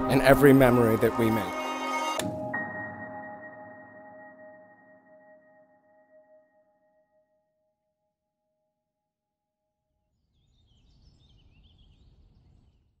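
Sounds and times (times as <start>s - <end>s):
held music notes: 0.0s - 5.2s.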